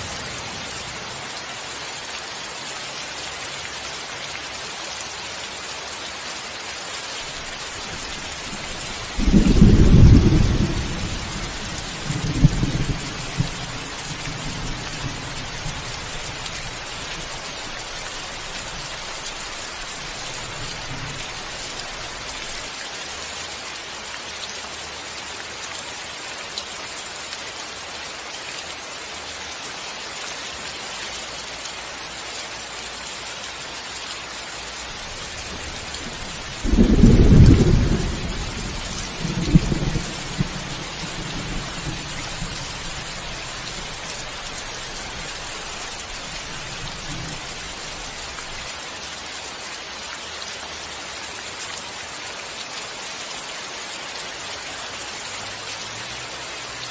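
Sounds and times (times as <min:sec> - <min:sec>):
steady rain hiss: 0:00.0 - 0:56.9
thunder rumbling: 0:08.0 - 0:17.3, 0:35.0 - 0:48.6
thunder clap: 0:09.2 - 0:11.4, 0:36.0 - 0:42.4.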